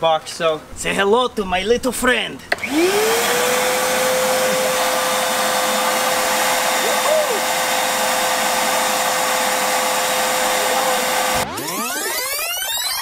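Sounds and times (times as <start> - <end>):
shop vacuum running: 2.5 - 12.4.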